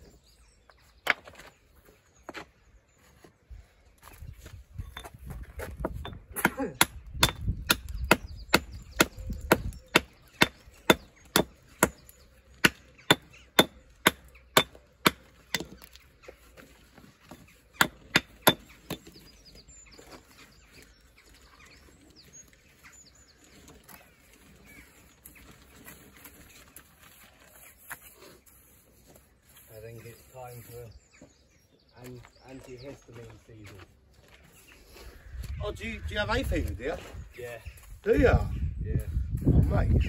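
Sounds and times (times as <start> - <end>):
scuffing and handling of stone: 0.0 - 6.6, 7.2 - 31.3
hammer striking stone: 6.0 - 12.0, 12.6 - 15.8, 17.8 - 19.2.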